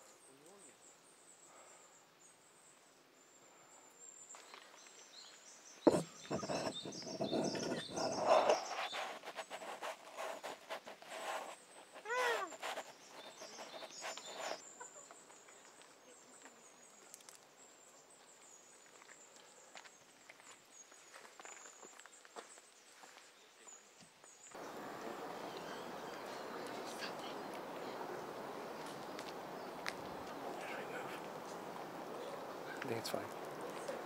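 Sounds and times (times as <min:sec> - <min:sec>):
monkey call: 0:12.0 - 0:12.8.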